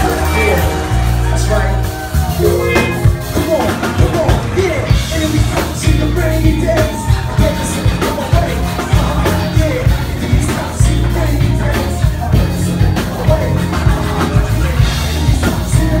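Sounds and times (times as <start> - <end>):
drum kit and bass groove: 0.0 - 16.0
person singing: 2.4 - 3.6.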